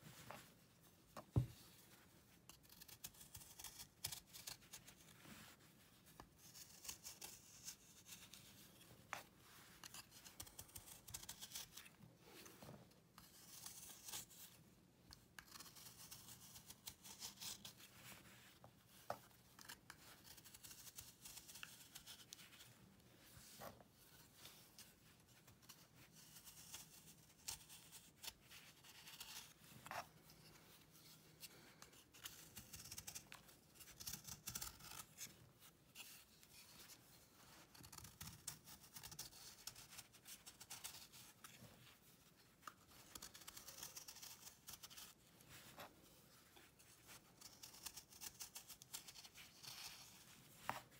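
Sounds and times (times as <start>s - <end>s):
knife scraping dried paste: 15.4s - 18.3s.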